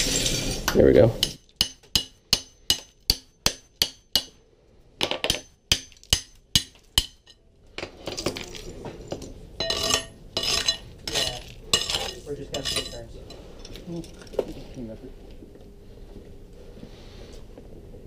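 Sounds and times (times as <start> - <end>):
tile shards scraping and clinking: 0.0 - 0.8, 7.2 - 14.4
hammer striking chisel: 1.2 - 4.4, 5.0 - 7.4.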